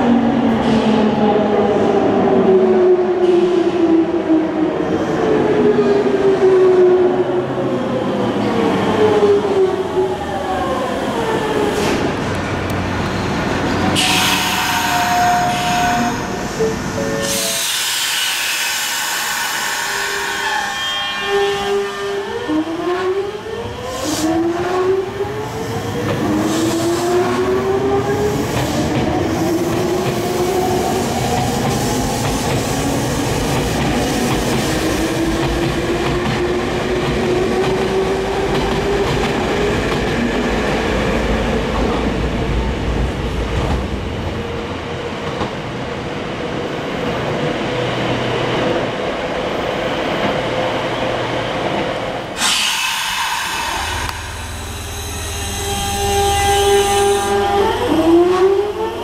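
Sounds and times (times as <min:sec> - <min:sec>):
train inverter and motors whining: 0:52.2 - 0:59.0.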